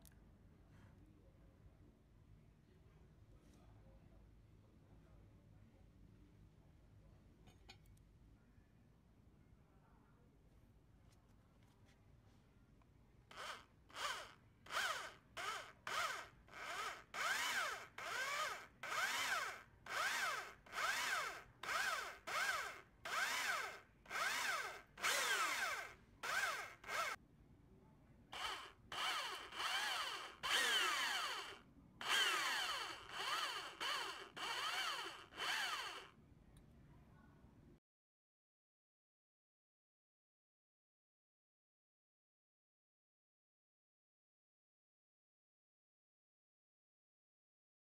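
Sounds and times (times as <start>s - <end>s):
electric drill drilling metal: 13.3s - 27.2s, 28.4s - 36.1s.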